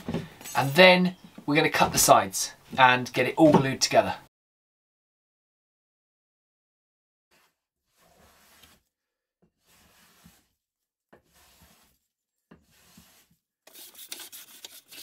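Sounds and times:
bench plane strokes on wood: 7.3 - 8.9, 9.5 - 10.6, 11.2 - 15.0.

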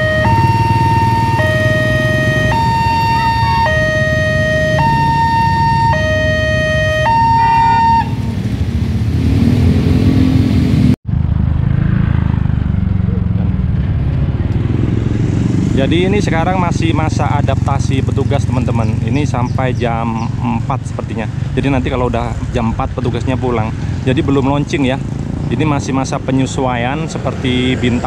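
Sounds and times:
two-tone level crossing alarm: 0.0 - 8.2
motorcycle and car engine rumble: 0.0 - 28.0.

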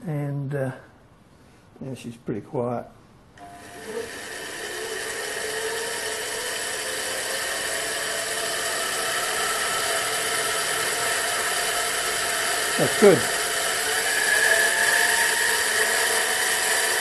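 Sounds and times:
gear train whirring and whining: 3.4 - 17.0.

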